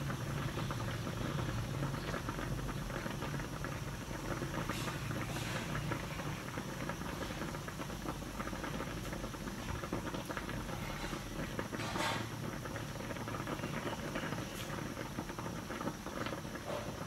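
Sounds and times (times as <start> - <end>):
water boiling with crackling hiss: 0.0 - 17.0.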